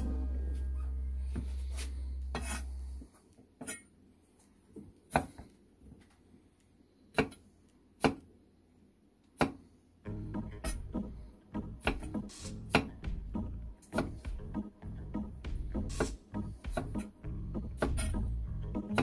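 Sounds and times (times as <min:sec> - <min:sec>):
knife chopping on wooden board: 0:07.1 - 0:07.4, 0:11.8 - 0:14.4, 0:15.5 - 0:17.1, 0:17.7 - 0:18.2.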